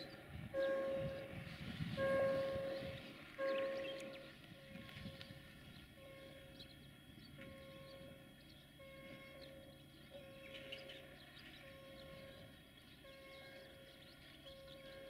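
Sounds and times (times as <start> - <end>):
birds chirping: 0.0 - 15.0
distant engine hum: 0.0 - 15.0
faint repeating warning tone: 0.0 - 15.0.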